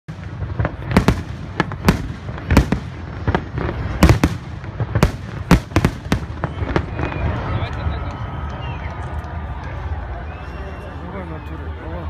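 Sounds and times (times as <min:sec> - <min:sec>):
firework bangs: 0:00.1 - 0:09.5.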